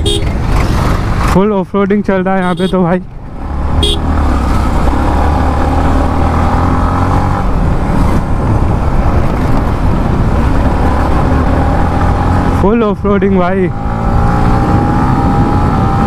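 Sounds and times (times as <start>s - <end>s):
motorcycle engine running: 0.0s - 6.8s
wind and road noise: 0.0s - 16.0s.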